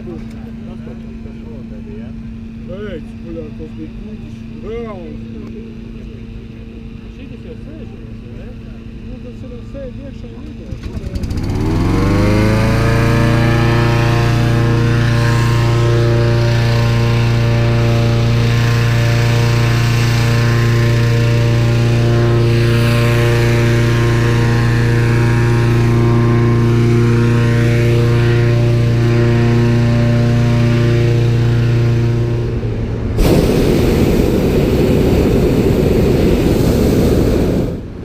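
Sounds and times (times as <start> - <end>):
fan engine humming: 0.0 - 38.0
rushing noise: 32.2 - 38.0.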